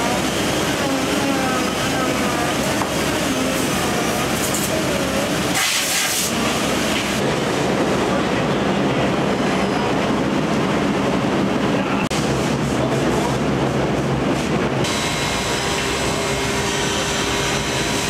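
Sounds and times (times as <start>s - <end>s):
factory machinery din: 11.7s - 18.0s.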